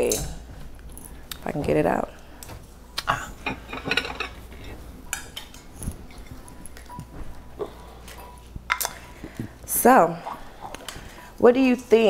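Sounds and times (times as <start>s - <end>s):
dishes and utensils clinking: 3.4s - 9.1s.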